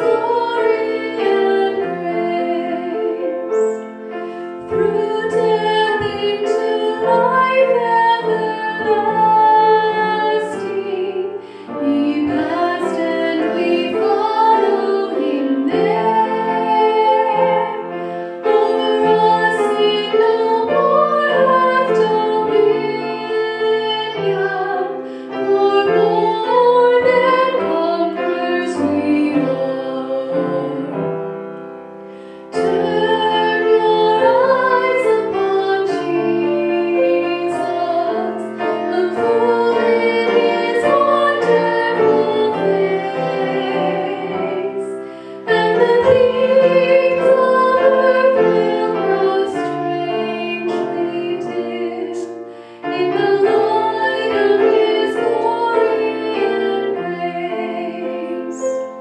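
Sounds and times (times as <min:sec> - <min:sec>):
woman singing into a microphone: 0:00.0 - 0:03.8, 0:04.7 - 0:17.8
grand piano: 0:00.0 - 0:59.0.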